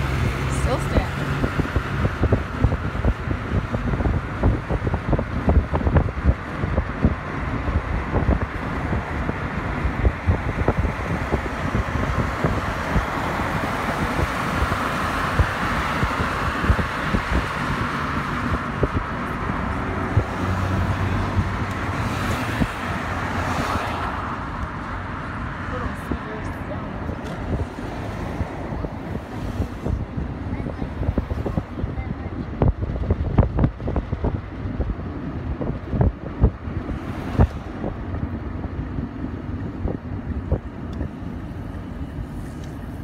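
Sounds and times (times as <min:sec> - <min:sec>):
car road noise: 0:00.0 - 0:43.0
wind gusting on microphone: 0:00.0 - 0:43.0
passing vehicles tyre hiss: 0:27.2 - 0:30.2, 0:36.7 - 0:39.6, 0:41.2 - 0:43.0.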